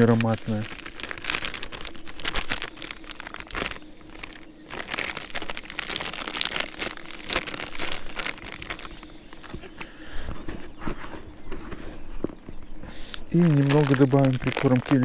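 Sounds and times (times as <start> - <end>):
plastic packet crinkling: 0.0 - 9.7, 13.1 - 15.0.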